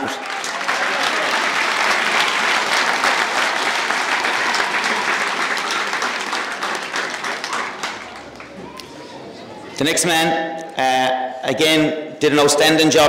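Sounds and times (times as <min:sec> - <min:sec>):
crowd applauding: 0:00.0 - 0:09.8.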